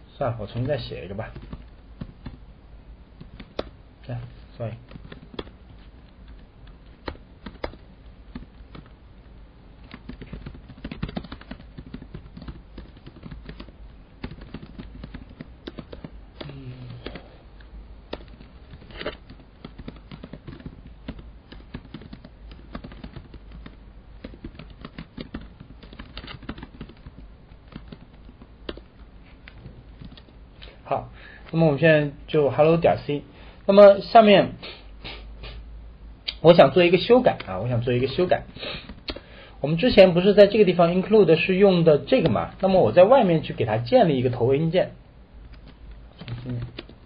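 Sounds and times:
low steady hum: 0.0 - 47.0
keyboard typing clicks: 6.1 - 8.9, 9.8 - 17.2, 18.1 - 30.3, 45.5 - 47.0.

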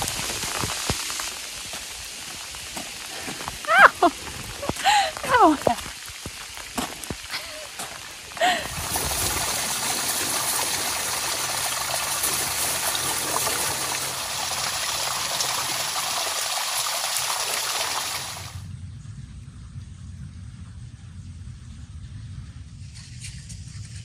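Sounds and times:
raindrops striking: 0.0 - 18.7
waterfall splashing into pool: 0.0 - 18.7.

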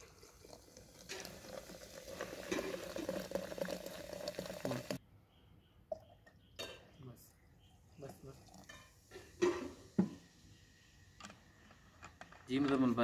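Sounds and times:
soda pouring and fizzing: 0.0 - 5.0, 8.3 - 10.2.

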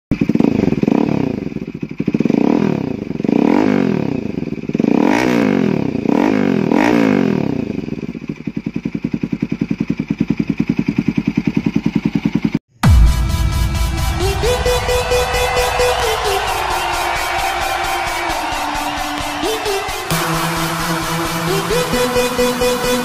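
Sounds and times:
motorcycle engine revving and idling: 0.1 - 13.0.

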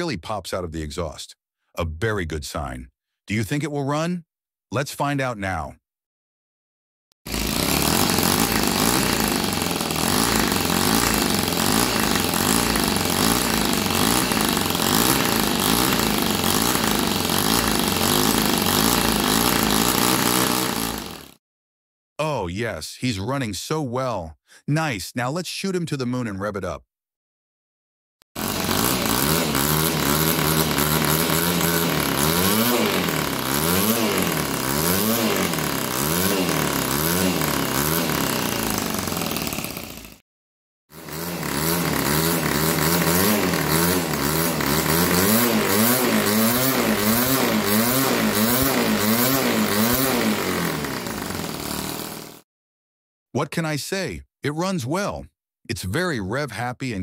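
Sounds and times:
model engine revving: 7.3 - 21.4, 28.4 - 40.2, 40.9 - 52.4.

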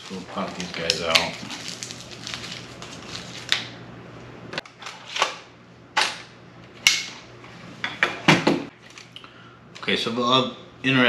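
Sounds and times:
plastic packaging snaps and clicks: 0.5 - 3.7.

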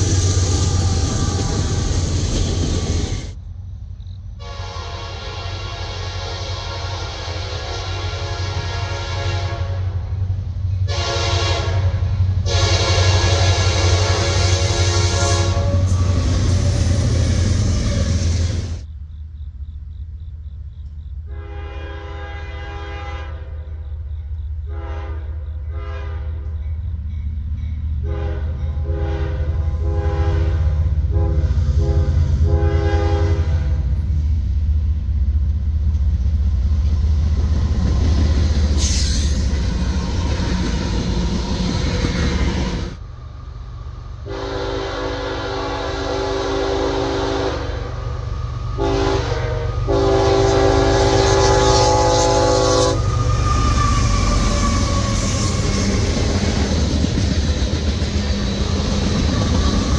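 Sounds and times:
engine and wheel rumble: 0.0 - 4.4, 33.4 - 44.4
passing locomotive rumble: 0.0 - 59.9
locomotive air horn blasts: 4.4 - 10.0, 10.8 - 18.8, 21.3 - 23.8, 24.7 - 26.6, 28.0 - 33.9, 44.2 - 55.8.

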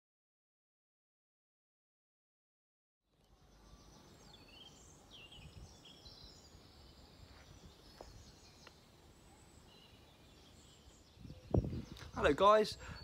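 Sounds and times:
small birds chirping: 3.1 - 13.0.

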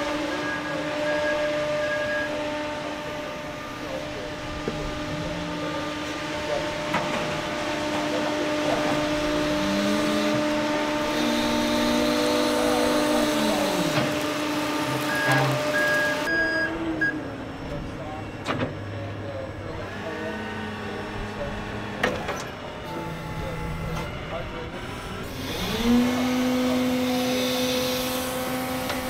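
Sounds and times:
electric backhoe hum and whine: 0.0 - 29.0
short beeps: 0.3 - 2.4, 15.1 - 17.2.

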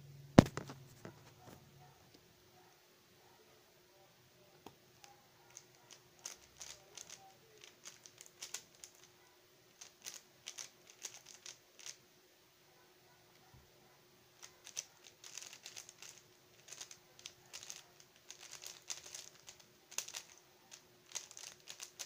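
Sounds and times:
puzzle cube plastic clicks: 4.6 - 12.0, 14.4 - 22.0.

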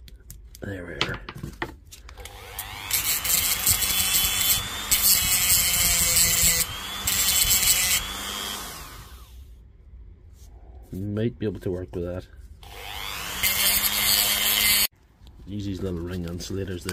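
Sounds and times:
power tool motor whining: 2.2 - 9.4, 12.6 - 14.9.

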